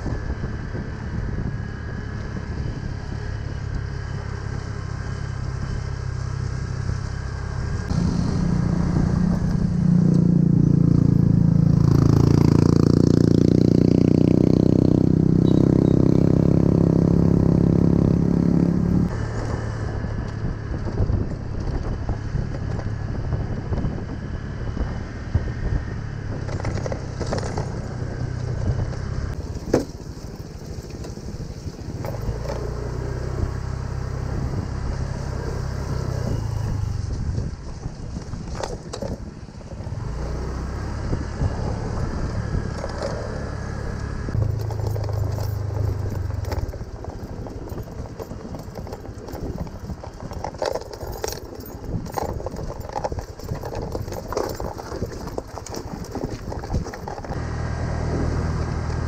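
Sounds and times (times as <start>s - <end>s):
scooter engine running: 0.0s - 59.0s
rattles and knocks from bumps: 26.4s - 32.8s, 44.3s - 57.4s.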